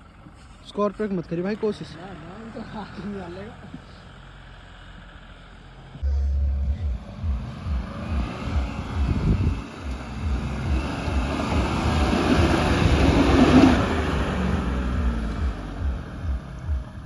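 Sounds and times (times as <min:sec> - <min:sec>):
suv engine climbing slope: 0:00.0 - 0:17.0
wind buffeting microphone: 0:07.7 - 0:16.0.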